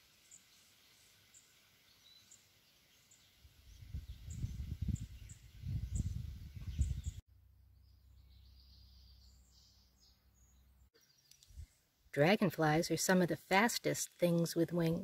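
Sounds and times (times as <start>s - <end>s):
faint bird chirping: 0.1s - 12.1s
wind gusts on microphone: 3.4s - 7.2s.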